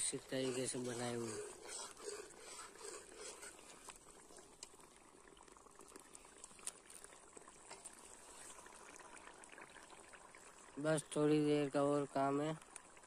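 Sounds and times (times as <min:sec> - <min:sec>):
gravy bubbling in oil: 0:00.0 - 0:13.0
small pops and ticks: 0:03.6 - 0:08.0, 0:12.6 - 0:13.0.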